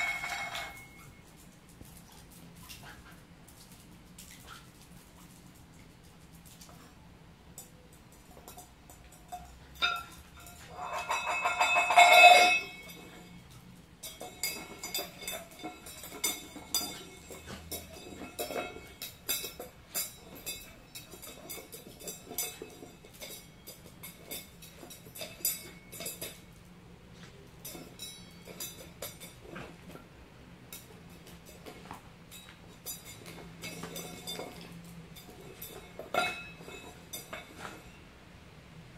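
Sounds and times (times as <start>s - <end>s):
metal bowl clattering on wood floor: 0.0s - 1.2s, 7.6s - 26.6s, 27.2s - 30.1s, 30.7s - 38.0s
metal bowl clinking and scraping: 0.0s - 4.6s, 7.6s - 38.1s.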